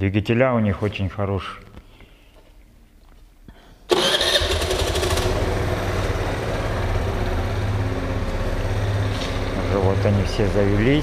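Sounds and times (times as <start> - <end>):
scooter engine starting and idling: 3.9 - 11.0.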